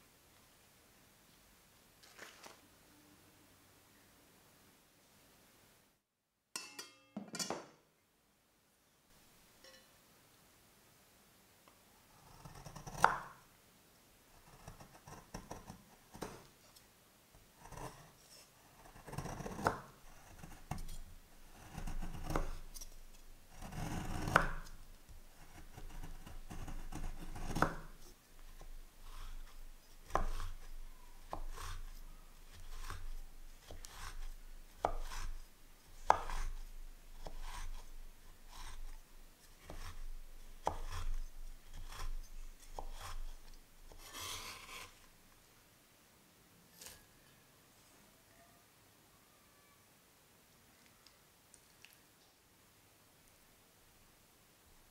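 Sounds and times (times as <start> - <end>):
knife shaving chocolate: 17.6 - 45.0.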